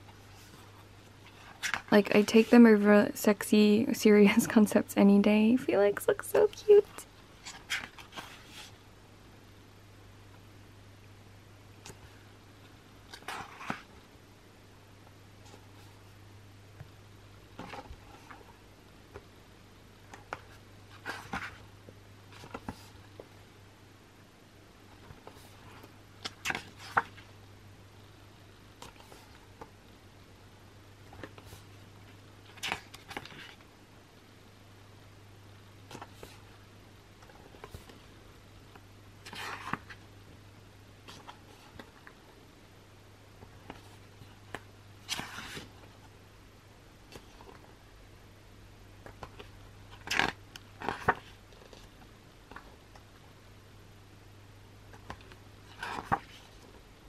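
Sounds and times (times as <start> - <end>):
faint steady hum: 0.0 - 57.0
pages swishing: 45.0 - 45.8
glossy pages turning: 49.0 - 52.7.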